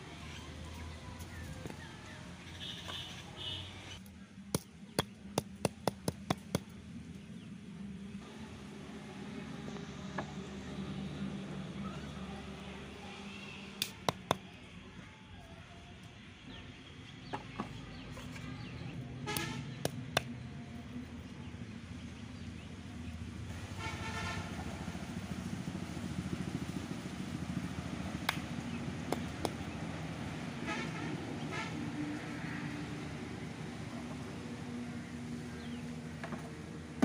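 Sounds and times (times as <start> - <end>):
stone knocking against brick: 4.6 - 6.7.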